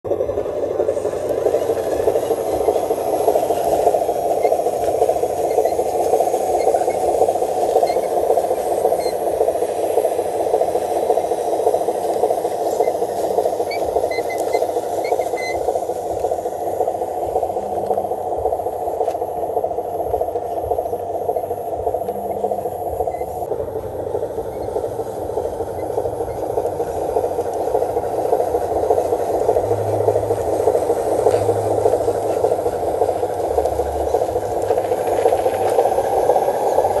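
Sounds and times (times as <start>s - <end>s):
toy truck motor whirring: 0.8s - 19.2s.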